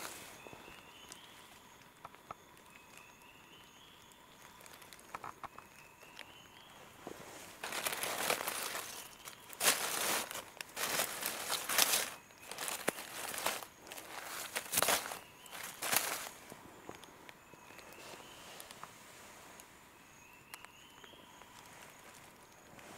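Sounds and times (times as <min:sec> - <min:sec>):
dry leaves rustling and crackling: 0:00.0 - 0:18.9
small clicks: 0:04.0 - 0:06.3.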